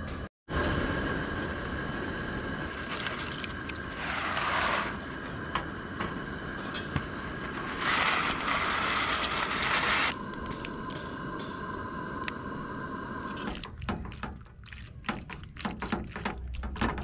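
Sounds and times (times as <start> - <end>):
camp stove burners hissing: 0.6 - 13.6
pasta pouring into pot: 2.7 - 5.0, 7.7 - 10.2.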